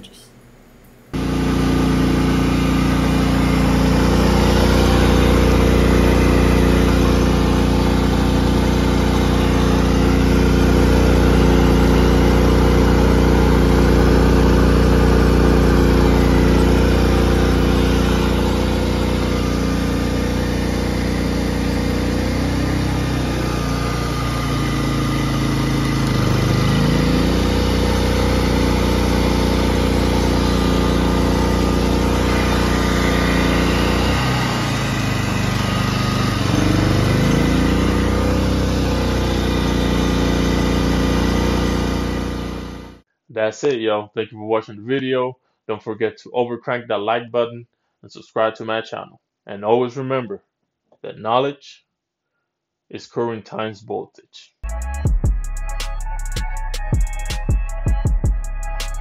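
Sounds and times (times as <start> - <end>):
generator engine running: 0.0 - 43.0.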